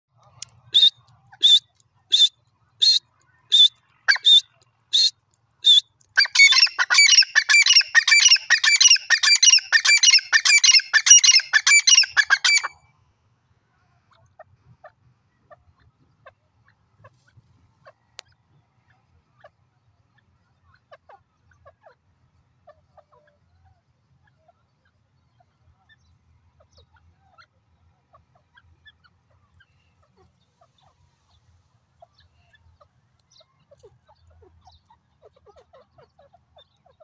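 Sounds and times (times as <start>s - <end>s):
bird calling: 0.4s - 12.8s.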